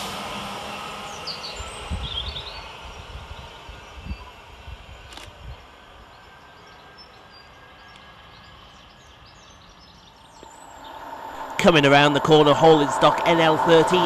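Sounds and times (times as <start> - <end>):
distant train rumble: 0.0 - 14.0
small birds chirping: 3.4 - 11.2.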